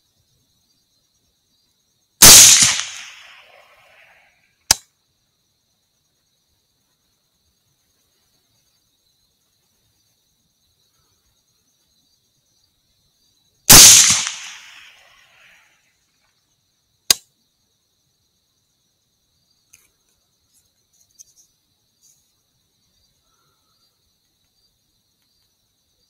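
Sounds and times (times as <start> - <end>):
crickets chirping: 0.0 - 26.0
rifle shot: 2.2 - 3.8, 13.7 - 15.0.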